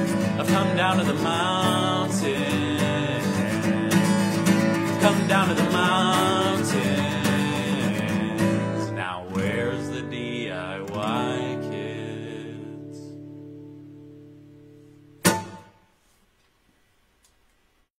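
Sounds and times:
acoustic guitar strumming: 0:00.0 - 0:16.1
sharp knock: 0:15.2 - 0:15.9.

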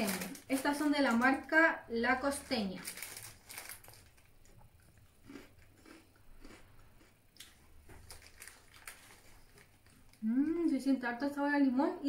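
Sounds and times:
faint crunching and chewing: 0:02.8 - 0:10.7.

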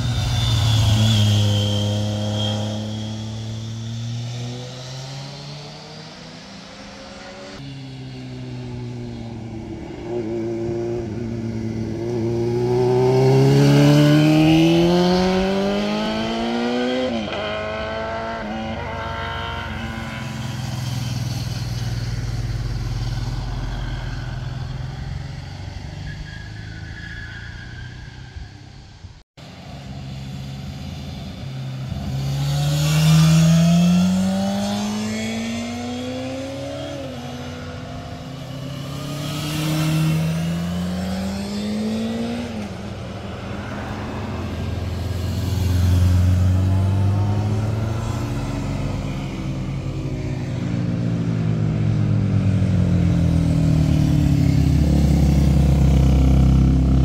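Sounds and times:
motorcycles accelerating: 0:00.0 - 0:26.6, 0:29.6 - 0:57.0.

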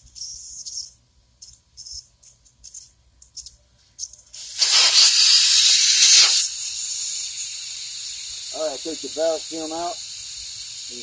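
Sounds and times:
air hissing from tyre valve: 0:04.3 - 0:11.0.

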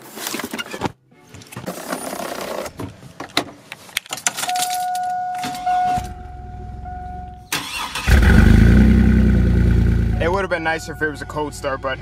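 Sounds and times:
keys clicking in ignition: 0:04.0 - 0:06.2
engine cranking and idling: 0:07.5 - 0:10.2
steady warning tone: 0:10.0 - 0:12.0.

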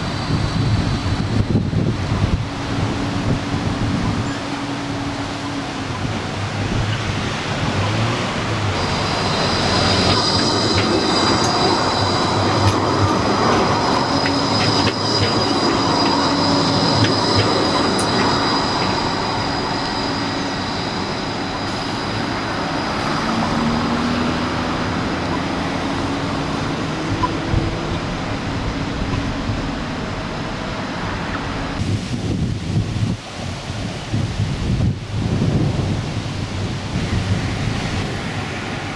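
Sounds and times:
tram wheels squealing on rails: 0:00.0 - 0:31.8
tram rumbling: 0:00.0 - 0:38.9.

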